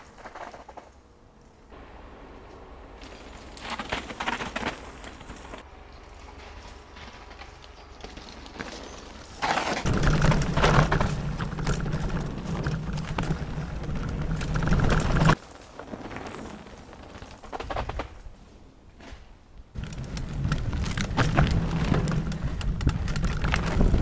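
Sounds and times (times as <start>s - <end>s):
bike rumbling and rattling: 1.8s - 24.0s
wind buffeting microphone: 19.8s - 24.0s.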